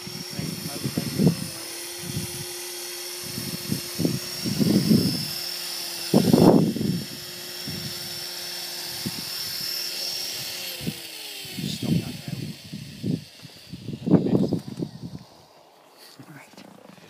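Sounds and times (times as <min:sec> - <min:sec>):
helicopter rotor hum: 0:00.0 - 0:17.0
high motor whine: 0:00.0 - 0:17.0.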